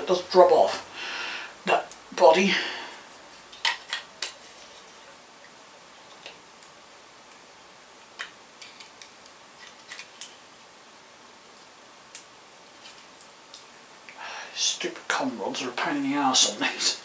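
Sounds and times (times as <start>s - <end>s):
faint room hiss: 0.0s - 17.0s.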